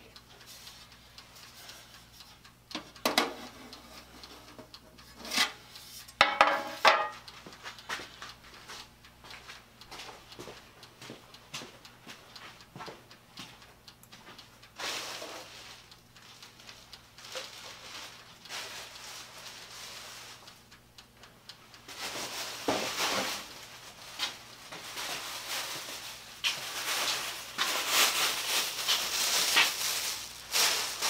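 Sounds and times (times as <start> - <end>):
plastic bag crinkling: 24.9 - 31.0.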